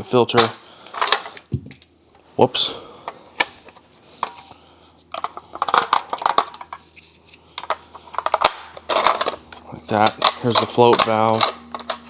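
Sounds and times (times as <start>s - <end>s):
plastic parts clicking and rattling: 0.4s - 1.8s, 5.1s - 6.9s, 7.5s - 12.0s.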